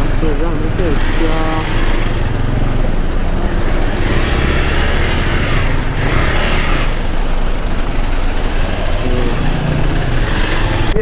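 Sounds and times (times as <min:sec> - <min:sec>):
lorries idling: 0:00.0 - 0:11.0
motorcycle engine running: 0:00.0 - 0:11.0.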